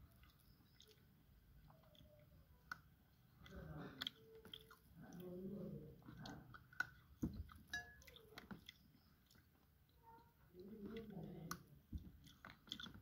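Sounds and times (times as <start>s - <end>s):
soft chewing: 0.0s - 13.0s
lip smacks: 0.1s - 5.3s, 10.9s - 13.0s.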